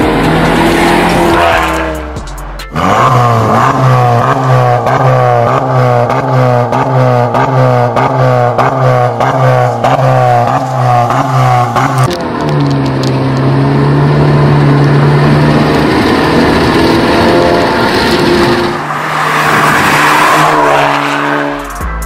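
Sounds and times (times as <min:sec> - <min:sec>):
car engine revving: 0:00.0 - 0:22.0.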